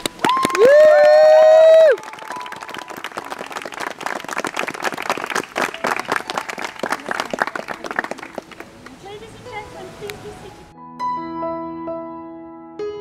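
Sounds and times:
crowd applauding: 0:00.0 - 0:09.6.

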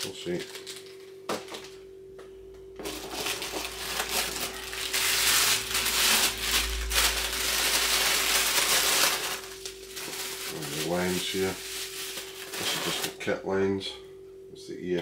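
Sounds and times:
bubble wrap crinkling: 0:00.0 - 0:01.8, 0:02.8 - 0:13.2.

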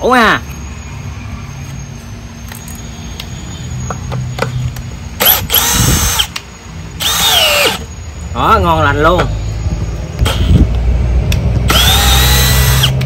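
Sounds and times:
drill driving screw into wood: 0:05.2 - 0:06.4, 0:07.0 - 0:07.9, 0:11.7 - 0:13.0.

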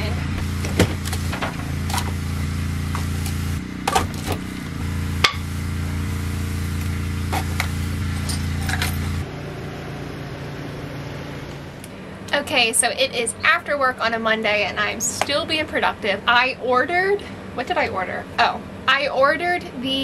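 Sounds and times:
steady low hum: 0:00.0 - 0:20.0
tools clinking and knocking: 0:08.2 - 0:09.1.

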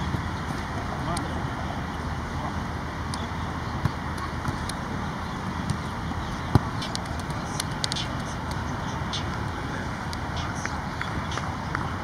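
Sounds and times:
outdoor noise: 0:00.0 - 0:12.0.

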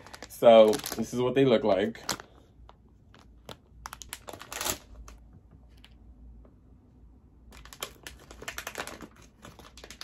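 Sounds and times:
plastic pouch crinkling: 0:00.0 - 0:05.3, 0:07.5 - 0:10.0.

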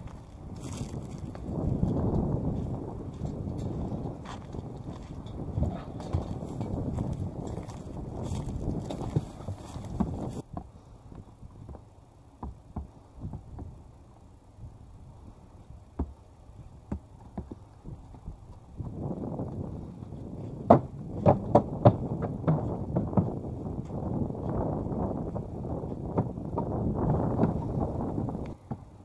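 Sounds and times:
horse hooves clopping: 0:00.0 - 0:13.8, 0:15.9 - 0:29.0
hooves on wooden boards: 0:00.0 - 0:13.9, 0:15.9 - 0:29.0.

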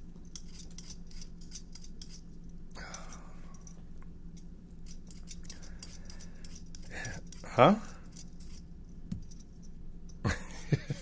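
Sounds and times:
blade scraping potato skin: 0:00.0 - 0:03.8, 0:04.8 - 0:09.6
steady low hum: 0:00.0 - 0:11.0.

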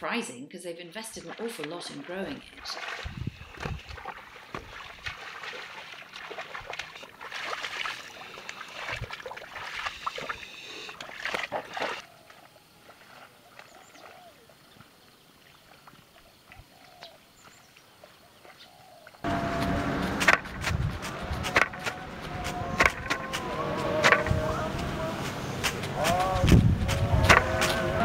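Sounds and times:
water and mud splashing: 0:01.1 - 0:28.0
faint bird chirps: 0:11.9 - 0:19.2.

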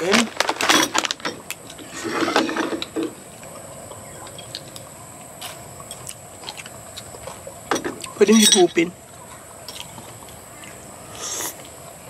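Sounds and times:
person speaking: 0:00.0 - 0:00.4, 0:08.1 - 0:09.0.

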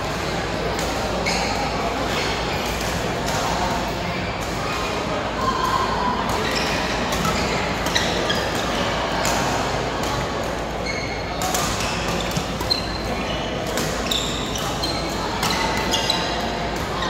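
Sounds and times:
echoing din of voices: 0:00.0 - 0:17.0
shoes squeaking on court: 0:06.4 - 0:08.9, 0:10.8 - 0:17.0
racket hitting shuttlecock: 0:11.3 - 0:13.0.

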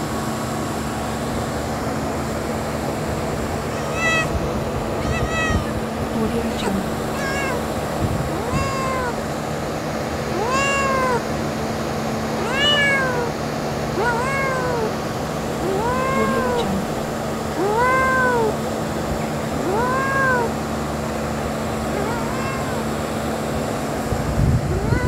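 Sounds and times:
kitten meowing: 0:03.5 - 0:09.3, 0:10.3 - 0:11.4, 0:12.4 - 0:15.0, 0:15.6 - 0:18.6, 0:19.6 - 0:20.6, 0:21.9 - 0:23.0, 0:24.7 - 0:25.0.

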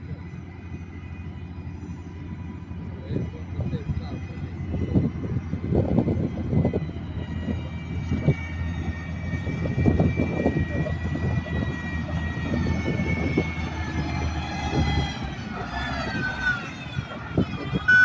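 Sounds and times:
grader diesel engine under load: 0:00.0 - 0:18.0.

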